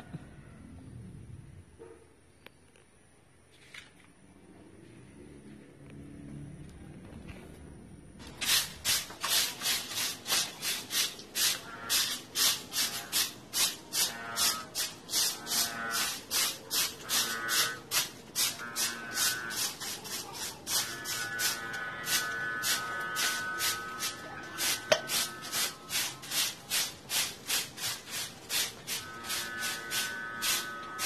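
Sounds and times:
broom sweeping dry leaves: 8.2s - 31.0s.

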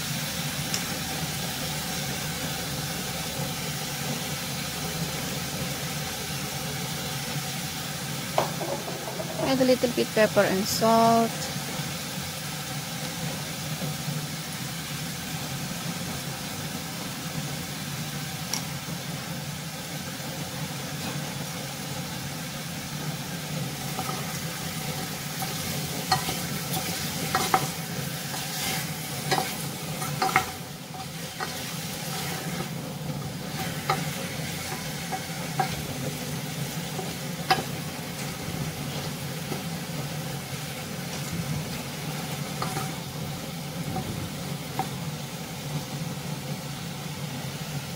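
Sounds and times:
chicken sizzling in oil: 0.0s - 47.9s
wooden spoon scraping metal pot: 25.4s - 32.7s.

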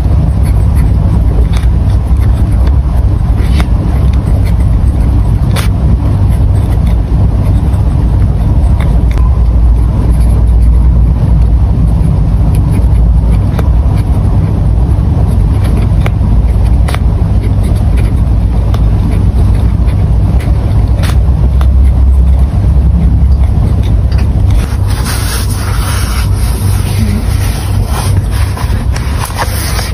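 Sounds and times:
pen writing on paper: 0.0s - 29.9s
steady low rumble: 0.0s - 29.9s
notebook rustling: 24.5s - 29.9s.

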